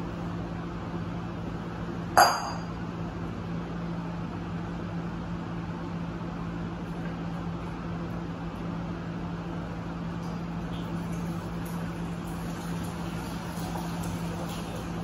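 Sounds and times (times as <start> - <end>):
steady low hum: 0.0 - 15.0
bowl clinking on floor: 2.2 - 2.7.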